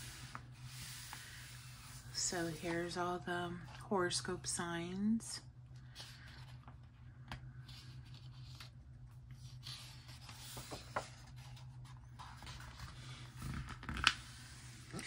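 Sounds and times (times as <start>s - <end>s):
low steady hum: 0.0s - 15.0s
paper pages rustling and turning: 5.8s - 15.0s.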